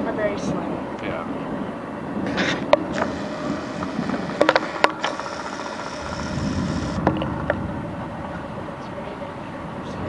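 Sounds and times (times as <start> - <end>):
low outdoor rumble: 0.0 - 10.0
sharp clicks: 2.7 - 7.2.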